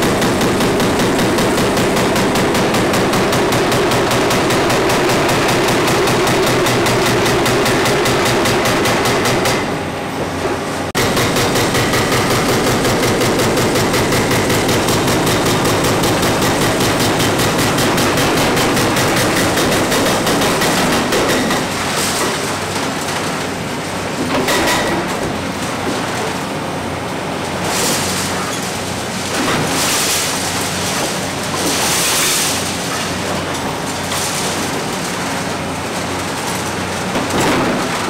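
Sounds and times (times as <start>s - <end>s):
hydraulic breaker hammering concrete: 0.0s - 9.8s, 10.9s - 22.5s
excavator engine running: 0.0s - 21.3s.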